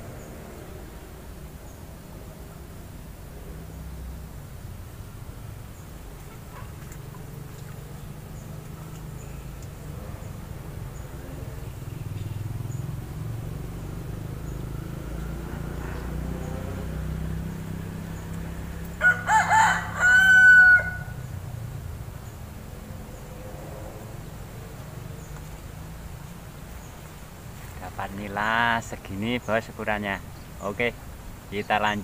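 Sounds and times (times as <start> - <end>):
rooster crowing: 18.9 - 21.3.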